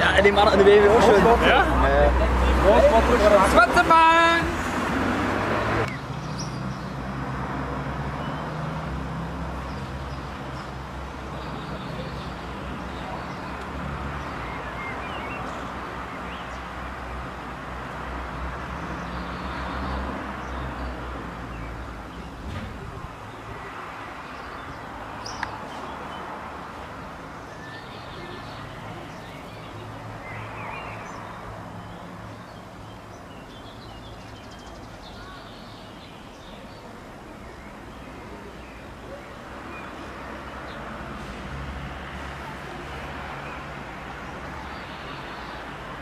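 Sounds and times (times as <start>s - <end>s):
road traffic noise: 0.0s - 46.0s.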